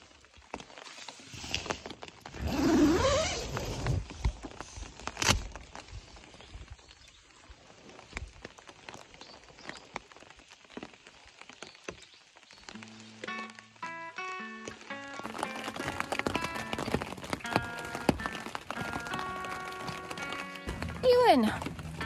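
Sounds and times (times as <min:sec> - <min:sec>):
raindrops tapping on a tent: 0:00.0 - 0:22.0
tent zipper opening: 0:00.9 - 0:05.6.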